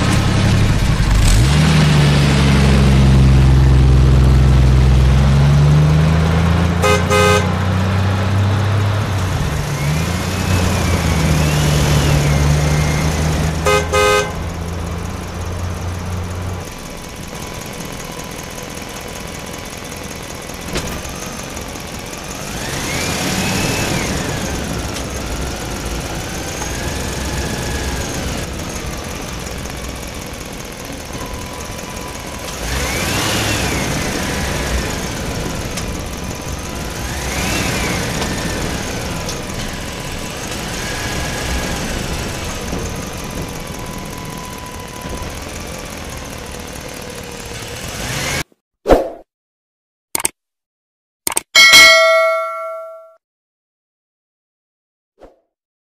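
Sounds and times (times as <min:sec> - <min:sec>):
car engine running: 0:00.0 - 0:48.4
car horn honks: 0:06.8 - 0:07.7, 0:13.6 - 0:14.6.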